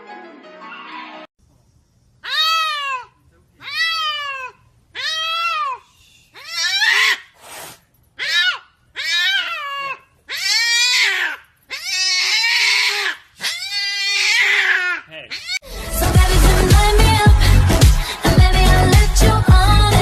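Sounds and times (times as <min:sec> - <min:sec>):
cat meowing and yowling: 0:02.3 - 0:05.8, 0:06.4 - 0:07.2, 0:08.2 - 0:15.6.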